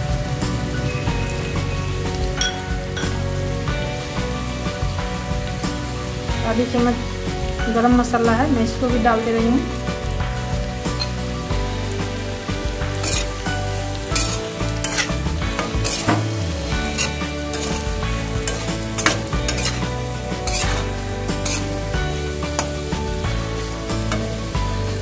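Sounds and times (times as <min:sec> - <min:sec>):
potatoes sizzling: 0:00.0 - 0:25.0
metal spatula scraping and clinking: 0:13.0 - 0:22.8.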